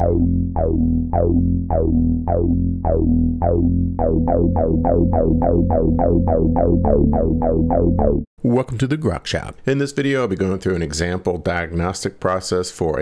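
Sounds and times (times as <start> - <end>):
steady low bass: 0.0 - 8.3
synthesizer plucked notes: 0.0 - 8.3.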